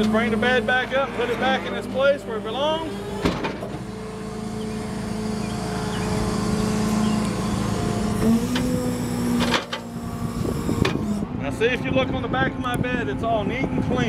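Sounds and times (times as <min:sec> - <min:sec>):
hydraulic tow truck bed drone: 0:00.0 - 0:14.0
mechanical clunk: 0:03.1 - 0:03.9, 0:08.2 - 0:09.9, 0:10.8 - 0:11.0.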